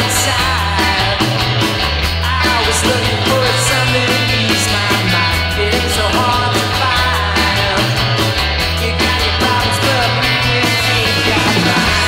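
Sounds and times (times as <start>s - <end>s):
drum beat: 0.0s - 12.0s
punk rock band playing: 0.0s - 12.0s.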